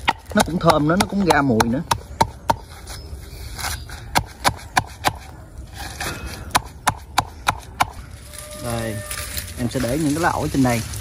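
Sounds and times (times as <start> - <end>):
pestle pounding in wooden mortar: 0.0 - 2.7, 6.5 - 8.0.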